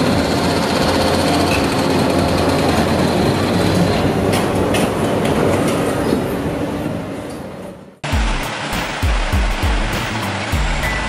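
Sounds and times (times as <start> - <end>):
excavator engine under load: 0.0 - 6.3, 8.0 - 11.0.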